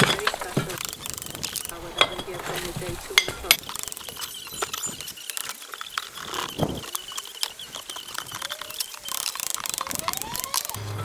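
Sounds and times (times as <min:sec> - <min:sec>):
hammer and chisel on metal: 0:01.7 - 0:05.0.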